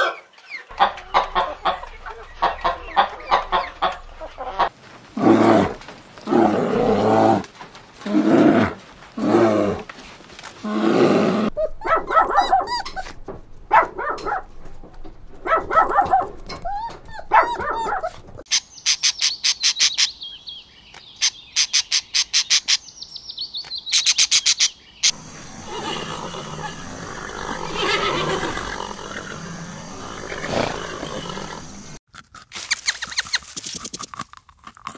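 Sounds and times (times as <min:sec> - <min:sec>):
dog barking and yelping: 0:11.5 - 0:14.5, 0:15.4 - 0:18.4.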